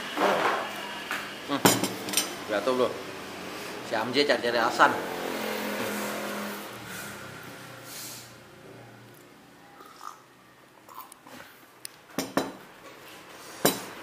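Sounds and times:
passing vehicle engine: 2.3s - 9.1s.

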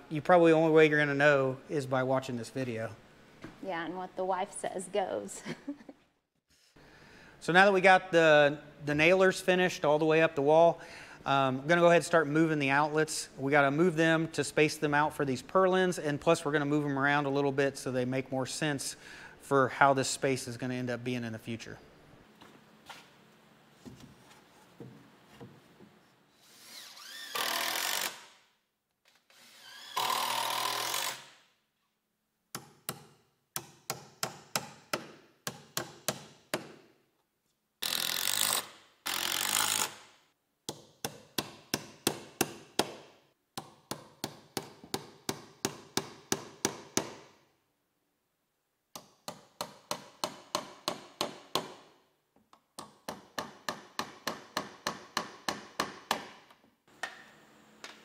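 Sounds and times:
cordless drill driving screws: 26.4s - 28.4s, 29.3s - 31.4s, 37.8s - 40.0s.

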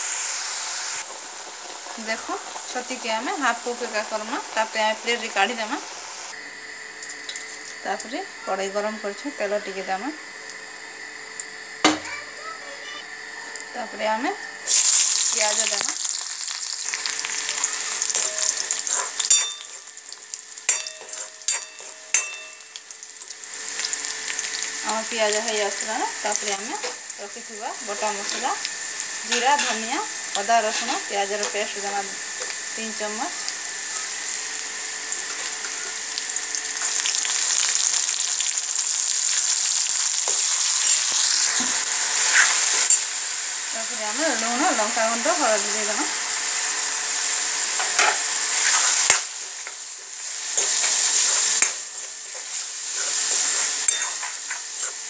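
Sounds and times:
onions sizzling in hot oil: 0.0s - 55.0s
steel spoon knocking on pan: 20.7s - 22.6s.

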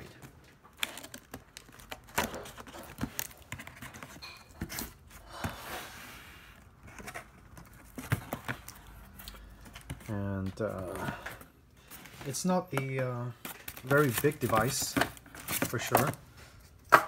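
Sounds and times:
cardboard scraping and rustling: 0.8s - 9.0s, 11.9s - 16.2s.

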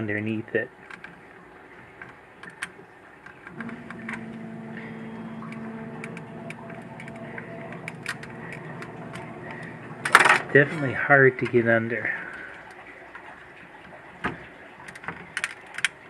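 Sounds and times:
low machine hum: 2.9s - 14.8s.

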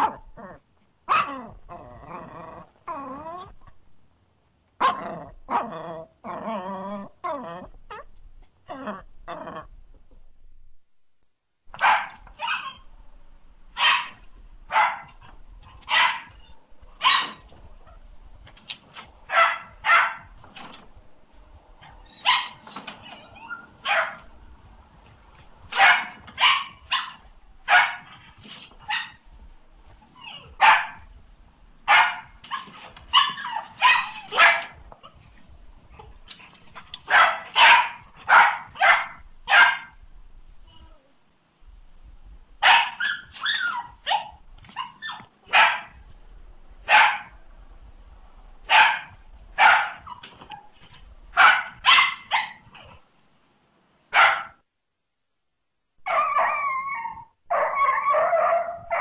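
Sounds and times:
dog barking: 11.7s - 12.8s, 13.8s - 15.2s, 15.9s - 16.4s, 17.0s - 17.4s, 19.3s - 20.3s, 22.2s - 22.6s, 23.8s - 24.3s, 25.7s - 28.1s, 30.6s - 31.1s, 31.9s - 34.8s, 37.0s - 40.0s, 42.6s - 44.4s, 45.0s - 46.0s, 46.9s - 47.3s, 48.7s - 50.2s, 51.4s - 52.6s, 54.1s - 54.6s, 57.5s - 59.0s.

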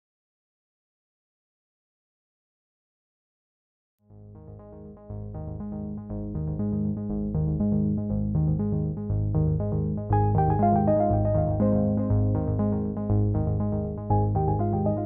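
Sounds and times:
background music with bass line: 4.1s - 15.0s.

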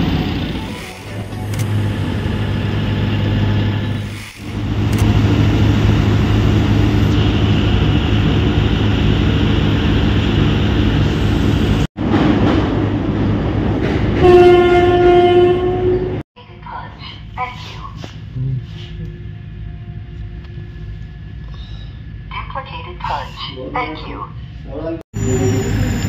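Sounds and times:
diesel construction machinery running: 0.0s - 14.0s
loud horn blast: 14.2s - 16.2s.

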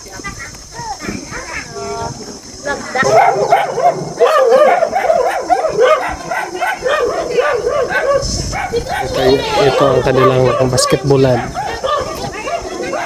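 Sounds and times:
dogs yelping and barking: 3.0s - 13.0s.

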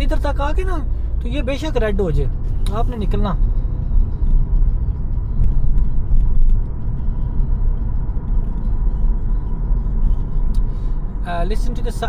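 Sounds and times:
car interior road rumble: 0.0s - 12.0s.

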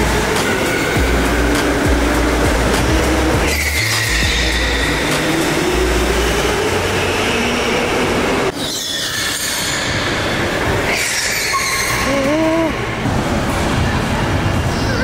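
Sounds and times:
tyre squeals: 3.4s - 5.2s, 8.5s - 12.3s.

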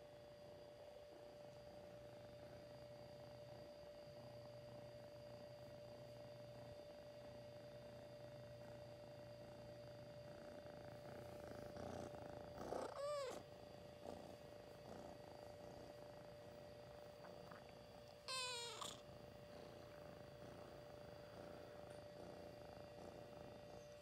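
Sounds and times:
kitten purring: 1.1s - 24.0s
kitten meowing: 12.8s - 13.4s, 18.2s - 19.0s.

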